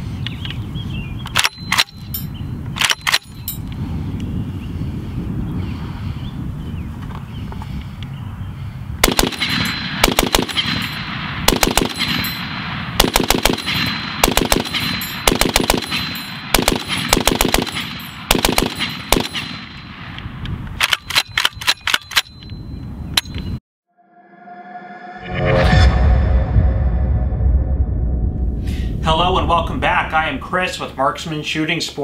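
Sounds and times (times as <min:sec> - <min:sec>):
machine gun firing bursts: 0:09.0 - 0:10.8, 0:11.5 - 0:12.2, 0:13.0 - 0:19.6.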